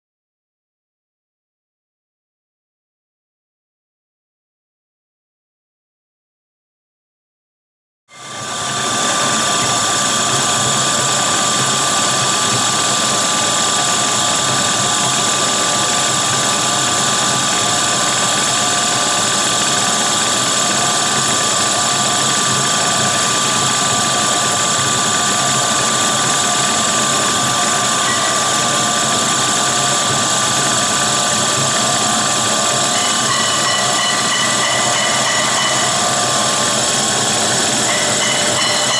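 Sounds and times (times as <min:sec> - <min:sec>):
extruder machine droning: 0:08.1 - 0:38.9
high machine whine: 0:08.1 - 0:38.9.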